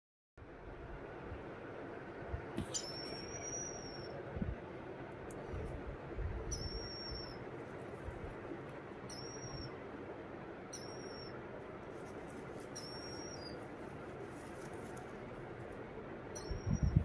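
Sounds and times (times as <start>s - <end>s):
background hiss: 0.9s - 16.4s
bird chicks squeaking: 2.6s - 4.2s, 6.5s - 7.5s, 9.0s - 9.8s, 10.7s - 11.4s, 12.1s - 15.1s, 16.3s - 17.0s.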